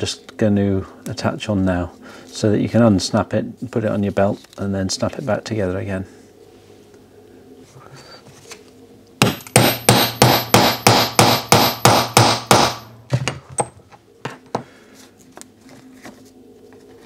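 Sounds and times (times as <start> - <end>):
hammer striking metal tool: 9.2 - 13.0.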